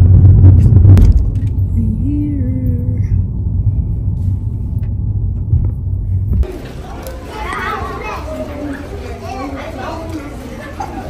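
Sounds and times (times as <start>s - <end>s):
car cabin rumble while driving: 0.0s - 6.5s.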